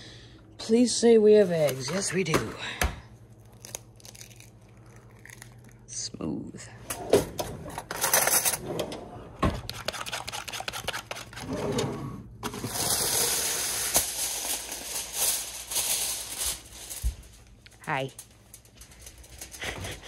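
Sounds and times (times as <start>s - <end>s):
aluminum foil crinkling: 1.4s - 2.2s, 3.3s - 5.9s, 12.6s - 20.0s
egg whisked in paper bowl: 9.7s - 11.5s
plastic trash bag rustling: 12.5s - 20.0s.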